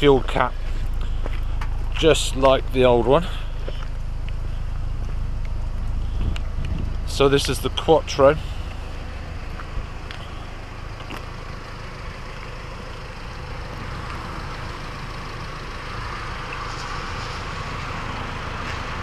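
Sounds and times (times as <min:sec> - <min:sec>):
road noise: 0:00.0 - 0:19.0
tyres hissing on wet road: 0:13.4 - 0:19.0.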